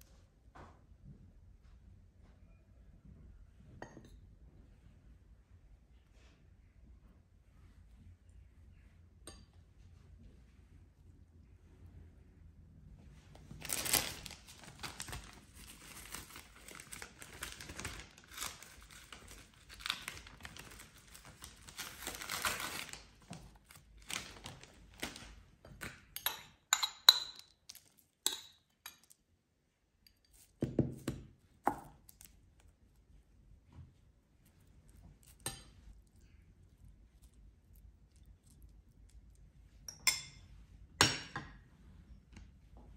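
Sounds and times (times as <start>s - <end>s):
cling film crinkling: 13.5s - 25.4s.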